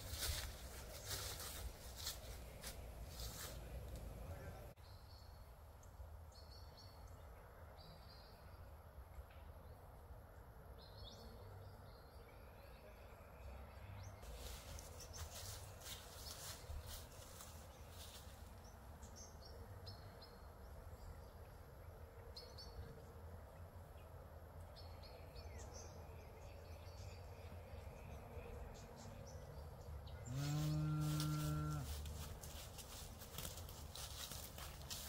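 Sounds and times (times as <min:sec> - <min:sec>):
bull mooing: 0:30.2 - 0:32.0.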